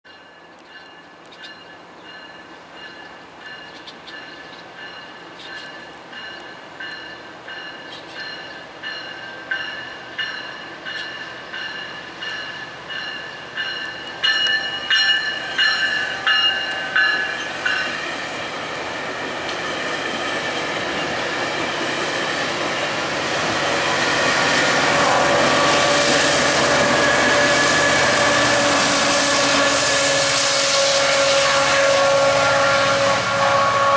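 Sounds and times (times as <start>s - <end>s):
diesel locomotive engine drone: 0.1s - 33.9s
train rumble: 0.1s - 33.9s
regular ringing strokes: 6.2s - 18.0s.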